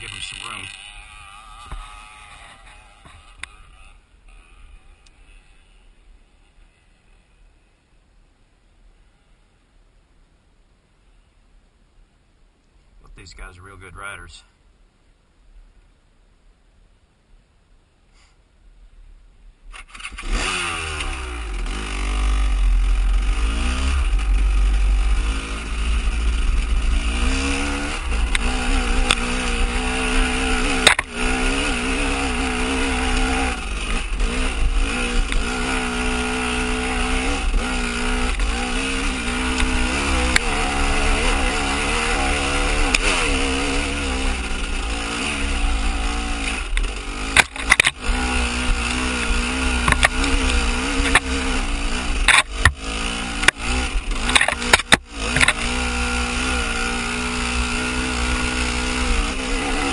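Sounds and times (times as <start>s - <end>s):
motorcycle engine revving: 0.0s - 7.5s, 19.7s - 59.9s
sharp knocks from bike: 46.8s - 48.0s, 49.8s - 51.4s, 52.2s - 52.8s.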